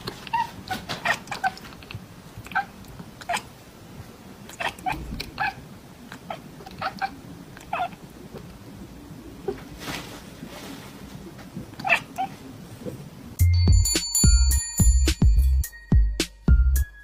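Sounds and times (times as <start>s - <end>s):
cat chattering chirps: 0.2s - 3.6s, 4.4s - 8.5s, 11.7s - 12.4s.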